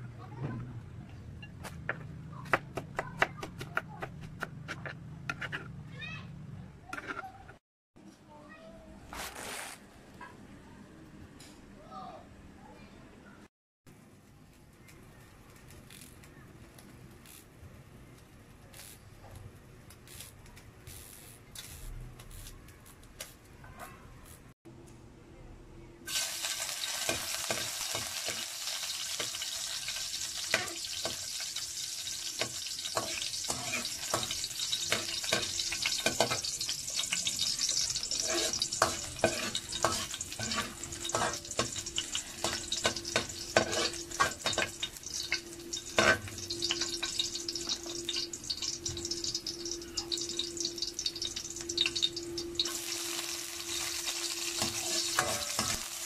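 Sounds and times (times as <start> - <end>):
garlic sizzling in oil: 26.1 - 56.0
metal ladle scraping wok: 32.2 - 48.8, 52.6 - 56.0.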